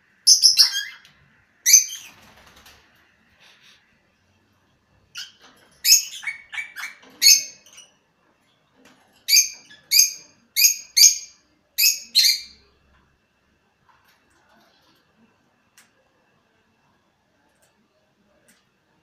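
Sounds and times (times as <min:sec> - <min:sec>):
birds chirping: 0:00.3 - 0:02.3, 0:05.1 - 0:12.7.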